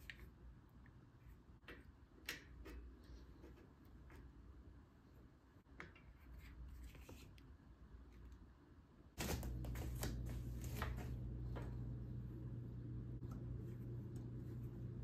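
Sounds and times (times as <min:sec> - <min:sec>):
steady low hum: 0:07.8 - 0:15.0.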